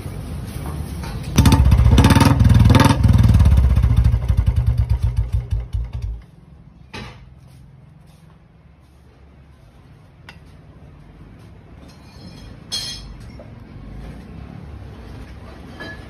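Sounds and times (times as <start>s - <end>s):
motorcycle engine revving: 1.4s - 6.2s.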